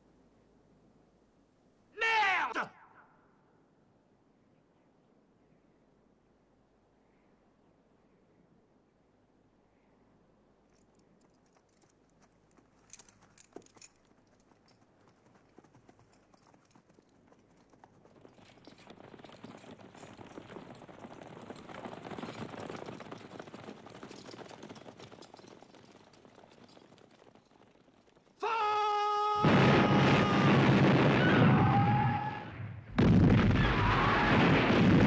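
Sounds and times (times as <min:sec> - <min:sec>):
clatter of hooves and equipment: 0:10.6 - 0:28.5.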